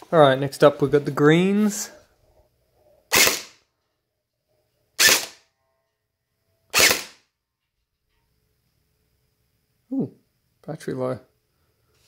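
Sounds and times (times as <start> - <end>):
gel blaster gearbox shots: 5.0 - 5.4, 6.7 - 7.2.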